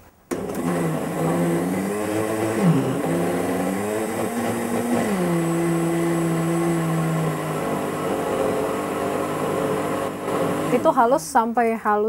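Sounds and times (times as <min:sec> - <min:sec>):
blender motor churning pulp: 0:00.3 - 0:11.3.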